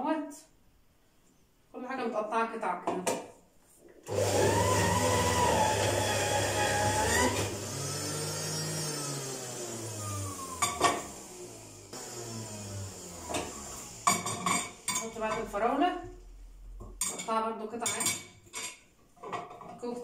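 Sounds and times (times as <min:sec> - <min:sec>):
juicer motor running: 0:04.0 - 0:15.2.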